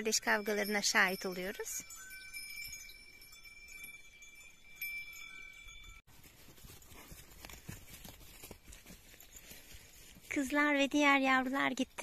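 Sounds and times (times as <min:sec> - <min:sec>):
faint bell-like ringing tones: 0:00.0 - 0:10.3
hooves stepping through grass: 0:06.1 - 0:11.8.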